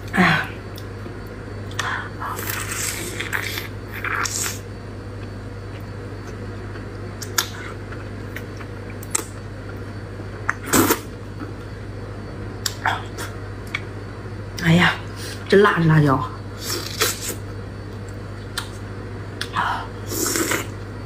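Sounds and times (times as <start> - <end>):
lip smacks: 7.2 - 7.6.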